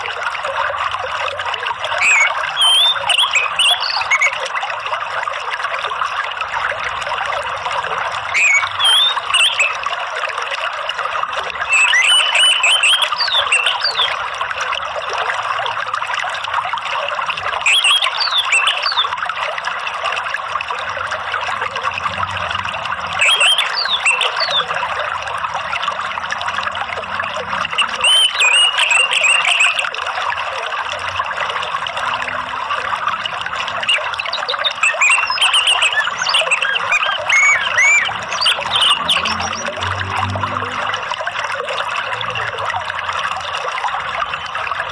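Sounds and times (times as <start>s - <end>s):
trickling water: 0.0s - 44.9s
bird chirps and whistles: 2.0s - 4.4s, 8.3s - 9.8s, 11.7s - 14.2s, 17.6s - 19.0s, 23.2s - 24.7s, 27.8s - 29.8s, 33.8s - 39.7s.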